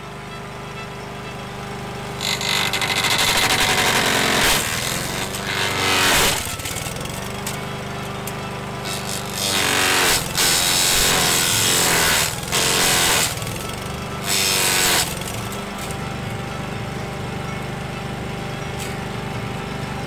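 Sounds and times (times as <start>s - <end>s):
lawn mower engine running: 0.0s - 20.0s
blade shredding branches: 2.2s - 16.0s.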